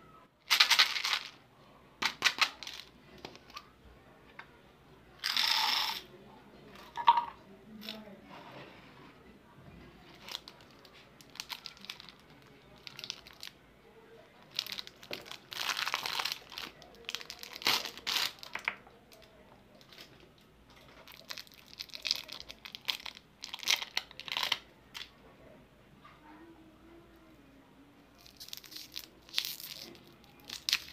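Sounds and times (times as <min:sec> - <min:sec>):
plastic wrappers crinkling and tearing: 0:00.4 - 0:01.4, 0:02.0 - 0:03.6, 0:10.1 - 0:13.6, 0:14.4 - 0:20.2, 0:20.9 - 0:25.1, 0:28.2 - 0:30.9.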